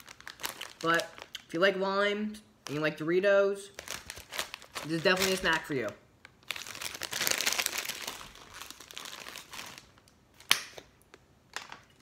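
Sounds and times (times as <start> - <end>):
plastic chip bag crinkling: 0.0 - 1.6, 3.7 - 10.5.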